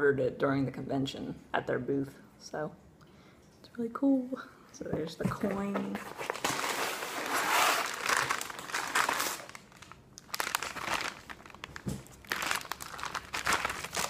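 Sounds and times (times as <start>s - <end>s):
packing paper crinkling: 6.0s - 14.0s.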